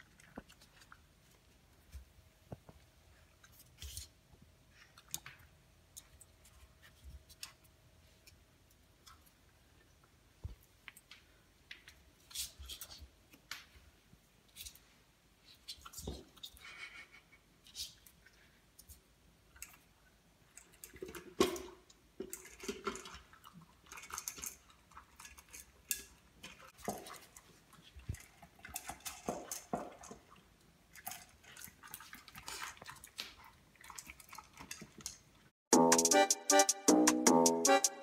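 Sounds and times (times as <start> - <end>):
puppy chewing: 0.0 - 2.0.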